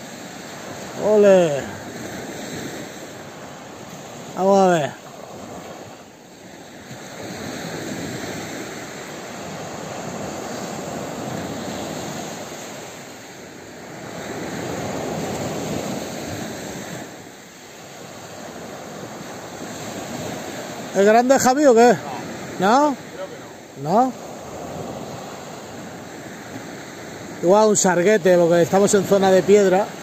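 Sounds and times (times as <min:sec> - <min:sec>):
small waves breaking on beach: 0:00.0 - 0:30.0.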